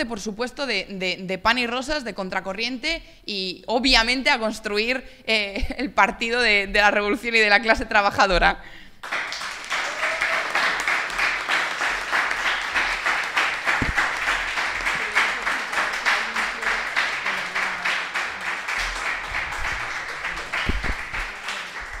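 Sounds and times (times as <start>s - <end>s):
audience applauding: 9.0s - 22.0s
low knock: 13.7s - 14.2s.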